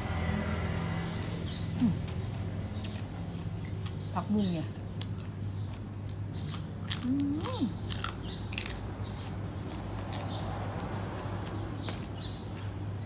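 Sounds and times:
crunching raw vegetable stalks: 0.9s - 13.0s
person humming: 1.8s - 2.2s, 7.0s - 7.8s.

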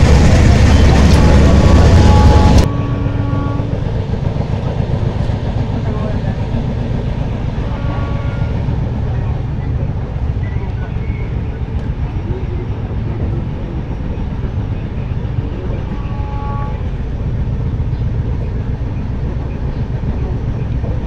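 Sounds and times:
train rumble: 0.0s - 21.0s.

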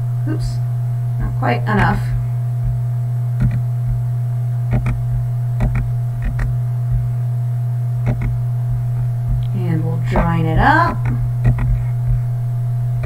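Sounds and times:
electrical mains hum: 0.0s - 13.0s
computer mouse clicks: 4.7s - 5.0s, 5.6s - 6.5s, 8.0s - 8.4s, 11.0s - 11.8s.

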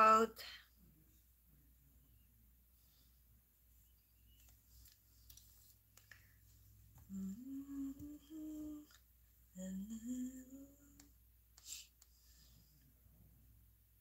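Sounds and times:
woman humming: 7.1s - 11.2s.

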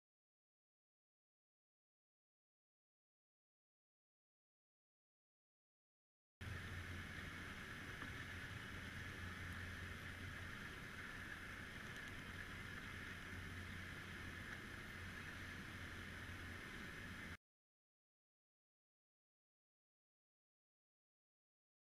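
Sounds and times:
low underwater hum: 6.4s - 17.4s
soft hiss: 6.4s - 17.4s.

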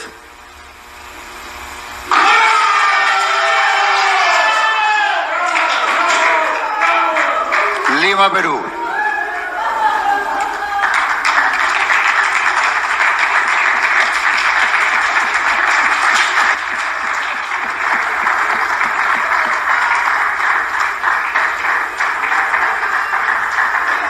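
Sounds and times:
crowd applauding: 0.0s - 0.2s, 0.9s - 24.0s.

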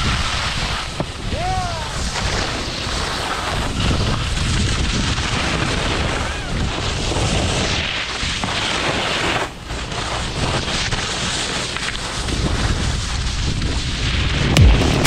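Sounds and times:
wind rushing over microphone: 0.0s - 9.0s, 12.2s - 15.0s
skis sliding on snow: 0.0s - 14.6s.

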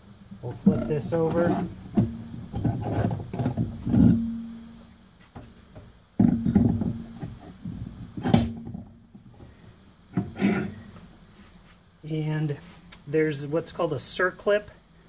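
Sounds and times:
metal knocks and scrapes on wood: 0.7s - 4.6s, 6.2s - 8.9s, 10.1s - 10.9s
low metallic ringing tone: 3.8s - 4.9s.

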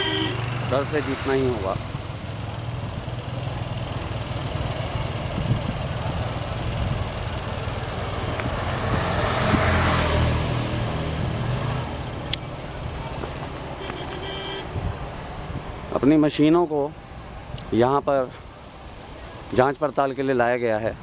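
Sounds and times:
vehicle passing: 0.0s - 15.9s
vehicle engine hum: 0.0s - 16.2s.

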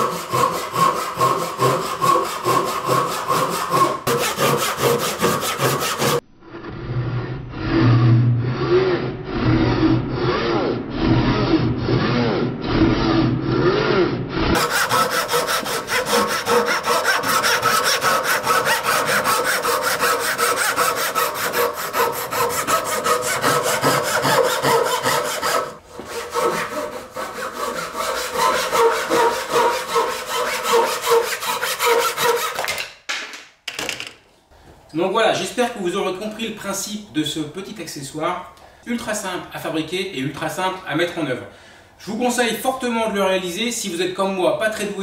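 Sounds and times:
hand saw cutting wood: 0.0s - 6.2s, 8.5s - 32.7s.

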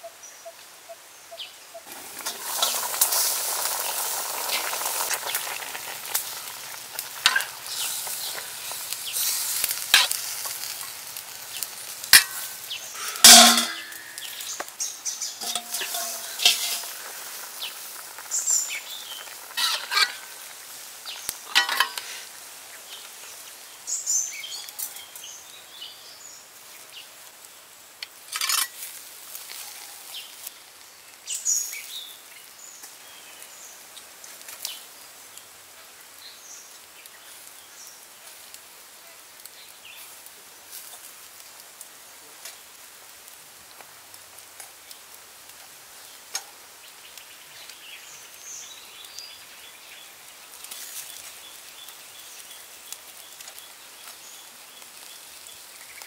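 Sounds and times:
birds chirping: 11.4s - 26.0s
sharp knocks of grill grate: 12.1s - 14.3s, 15.4s - 16.9s.

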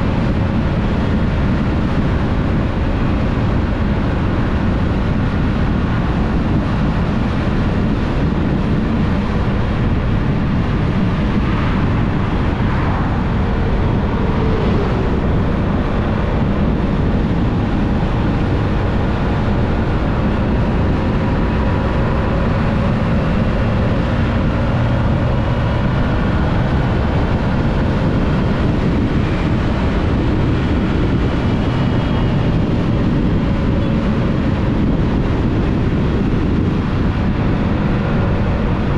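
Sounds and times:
wind rushing over microphone: 0.0s - 38.9s
faint whine drifting in pitch: 6.6s - 38.9s.

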